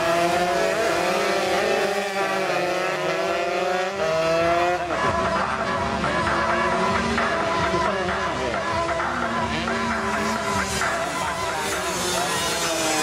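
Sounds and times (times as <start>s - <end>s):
racing motorcycles revving: 0.0s - 13.0s.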